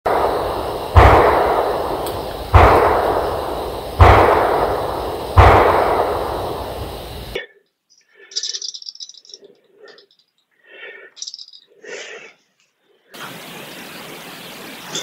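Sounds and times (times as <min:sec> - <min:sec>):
gunshots echoing: 0:00.1 - 0:07.4.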